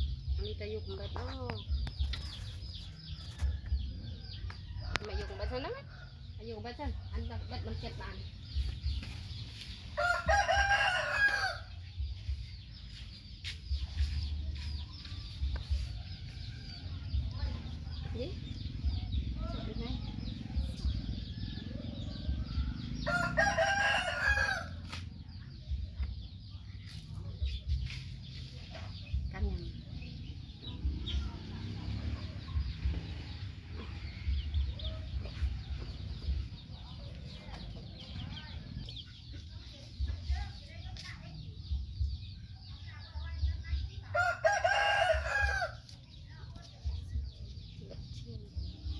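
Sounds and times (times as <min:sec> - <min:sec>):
chickens clucking and peeping: 0:00.0 - 0:48.9
rooster crowing: 0:10.0 - 0:11.7, 0:23.0 - 0:24.7, 0:44.2 - 0:45.8.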